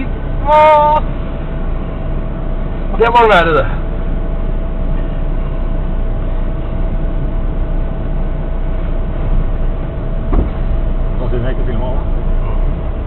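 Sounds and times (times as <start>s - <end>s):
faint constant hum: 0.0s - 13.0s
truck engine idling: 0.0s - 13.0s.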